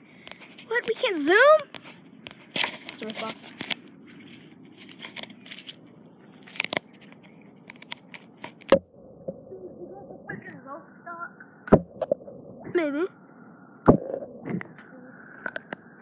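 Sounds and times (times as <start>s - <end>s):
handling noise scrapes and crackles: 0.2s - 8.8s
sharp knock: 11.7s - 12.2s, 13.9s - 14.1s.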